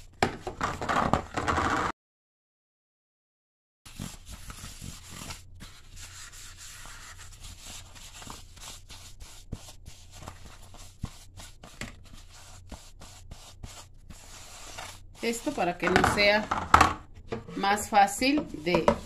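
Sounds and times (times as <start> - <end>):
paper napkin rubbing a mold: 3.9 - 16.5.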